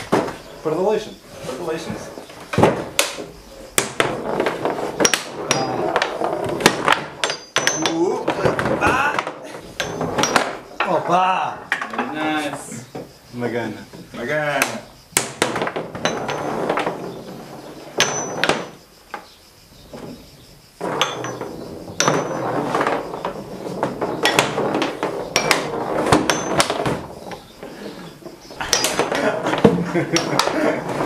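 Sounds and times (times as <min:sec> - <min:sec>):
foosball knocks and clacks: 0:02.5 - 0:12.2, 0:14.6 - 0:18.8, 0:20.8 - 0:31.0.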